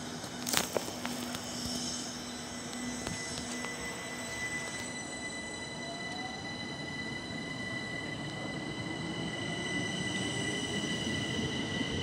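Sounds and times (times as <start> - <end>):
high whine: 0.0 - 12.0
train wheels rumbling on rails: 0.0 - 12.0.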